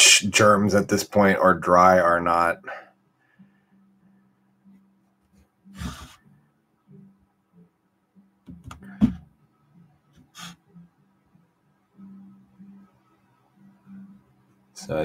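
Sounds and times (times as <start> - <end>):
close-up breathing: 2.6 - 3.9.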